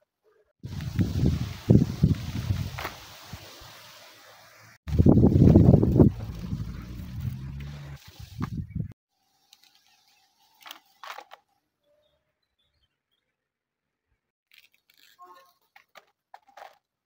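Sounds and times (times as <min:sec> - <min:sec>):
wind buffeting microphone: 0:00.6 - 0:02.9, 0:04.9 - 0:07.6, 0:08.2 - 0:09.0.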